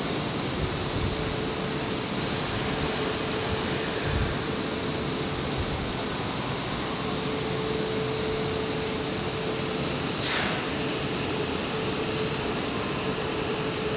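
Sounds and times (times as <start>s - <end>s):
train running rumble and hiss: 0.0s - 13.9s.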